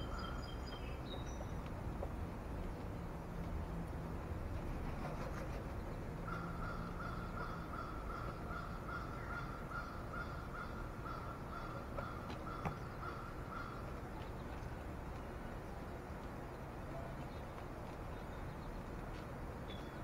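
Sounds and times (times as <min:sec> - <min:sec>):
crow cawing: 0:06.3 - 0:13.8.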